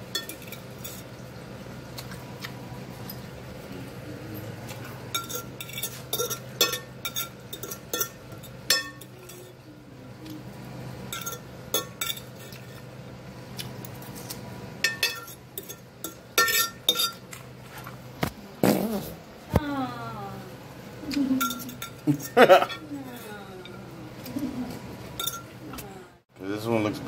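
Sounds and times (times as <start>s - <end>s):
faint steady hum: 0.0s - 27.0s
fork clinking on ceramic plate: 5.1s - 9.5s, 11.1s - 12.7s, 14.8s - 17.2s, 21.4s - 23.3s, 25.2s - 25.5s.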